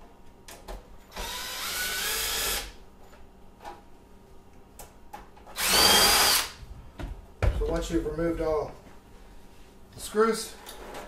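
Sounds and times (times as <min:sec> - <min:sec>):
cordless drill motor whining: 0:01.1 - 0:02.8, 0:05.6 - 0:06.6.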